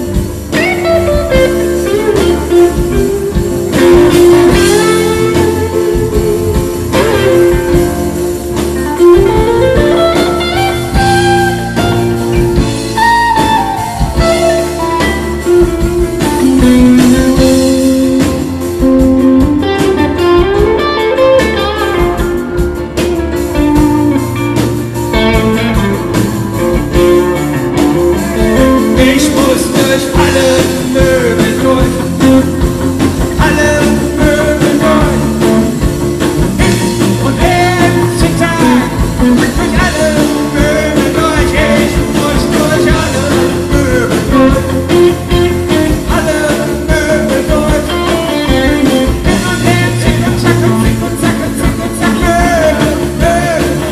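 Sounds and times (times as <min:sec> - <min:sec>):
rock band playing: 0:00.0 - 0:53.9
man singing into a microphone: 0:28.6 - 0:35.9, 0:36.6 - 0:53.9.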